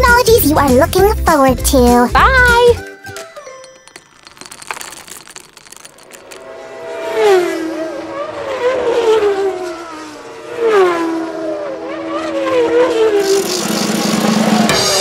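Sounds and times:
racing car sweeping past: 6.5s - 14.7s.

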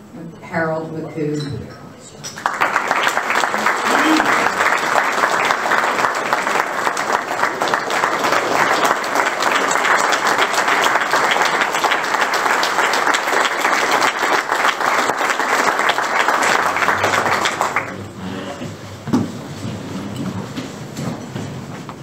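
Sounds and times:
audience applauding: 2.4s - 18.6s.

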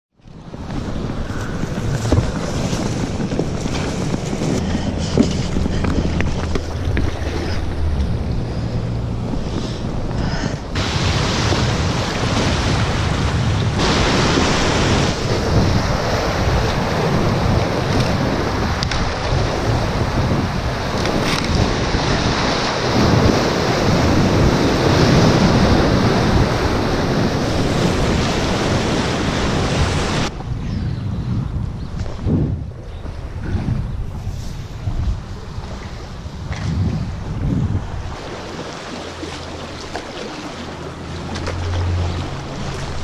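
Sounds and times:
wind buffeting microphone: 0.1s - 43.0s
water splashing: 1.4s - 30.3s, 35.4s - 43.0s
rushing whitewater: 10.6s - 30.3s, 38.0s - 43.0s.

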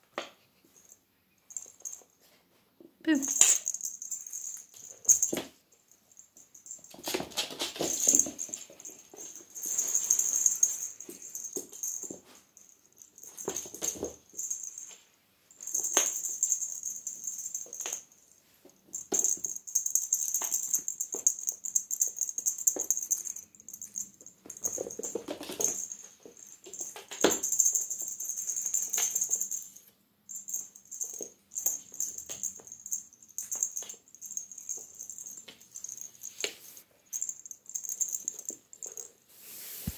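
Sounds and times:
cat toy rattling: 6.1s - 14.9s, 18.9s - 39.2s.

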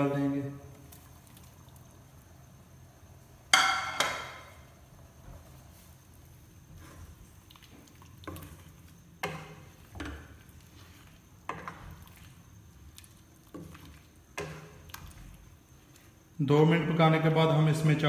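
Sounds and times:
wooden spoon stirring wet mix: 0.0s - 2.4s, 4.6s - 18.0s
spoon knocking a pot: 3.5s - 4.6s, 9.2s - 10.3s, 14.3s - 14.8s.

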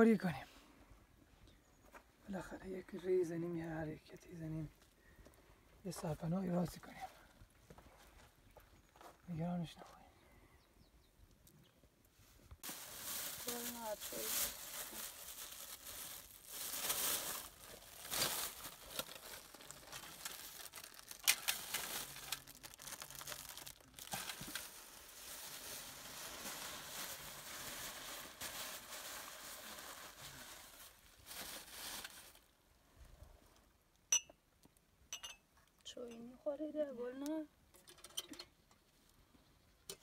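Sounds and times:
plastic bags crinkling: 12.6s - 32.5s.

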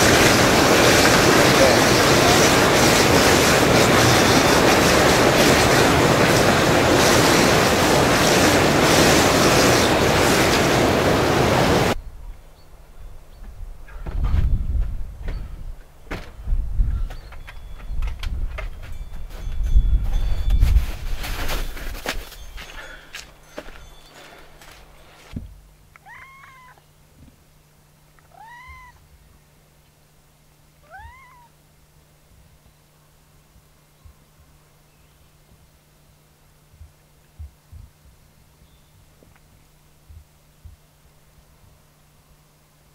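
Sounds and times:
whirlpool bath jets churning water: 0.0s - 12.0s
cat meowing: 26.0s - 26.8s, 28.3s - 29.0s, 30.8s - 31.6s.

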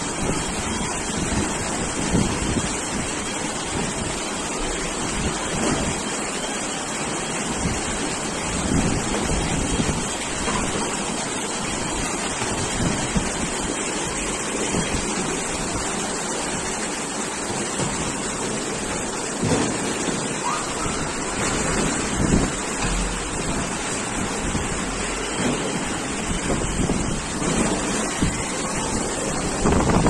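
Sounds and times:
wind gusts on microphone: 0.0s - 6.1s, 7.5s - 10.8s, 11.6s - 16.1s, 20.8s - 30.0s
floodwater rushing: 0.0s - 30.0s.

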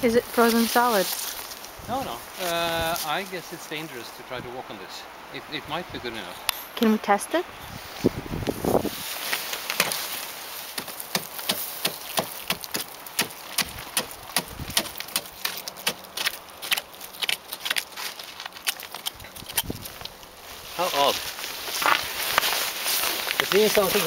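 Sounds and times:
fist knocking and cracking ice: 10.8s - 17.9s.

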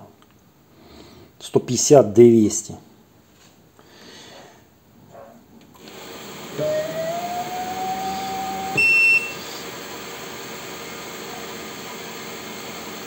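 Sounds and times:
lathe motor whine: 5.8s - 13.0s
machine low hum: 5.8s - 13.0s
short high electronic beep: 8.7s - 9.4s.

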